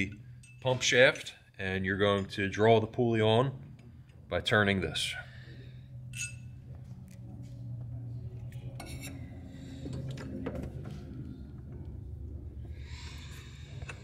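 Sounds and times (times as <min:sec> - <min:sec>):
low steady hum: 0:00.0 - 0:14.0
metallic clinks and taps: 0:00.4 - 0:00.6.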